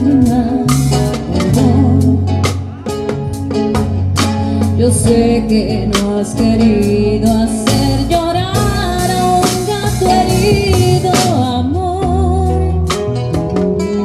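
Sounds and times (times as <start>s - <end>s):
woman singing: 0.0s - 2.6s, 4.6s - 13.0s
bass: 0.0s - 14.0s.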